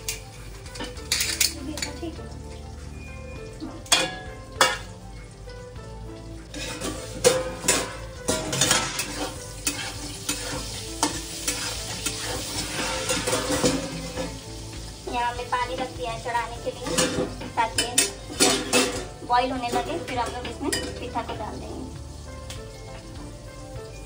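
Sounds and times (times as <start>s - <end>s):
metal spoon clicking on pan: 0.0s - 2.0s
food sizzling in a pan: 0.0s - 24.0s.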